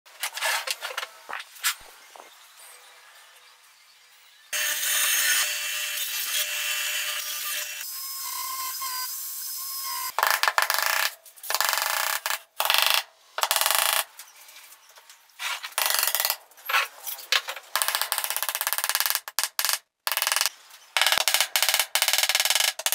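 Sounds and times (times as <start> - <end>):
hammer tapping wooden dowels: 17.8 - 22.9.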